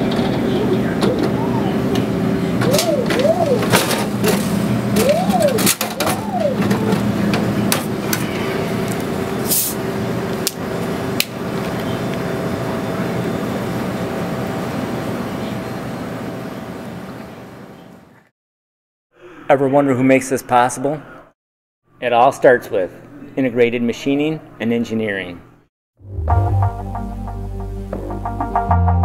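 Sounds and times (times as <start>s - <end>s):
vending machine humming: 0.0s - 18.2s
clunks and clicks: 0.1s - 8.3s
delivery motor whirring: 0.8s - 14.6s.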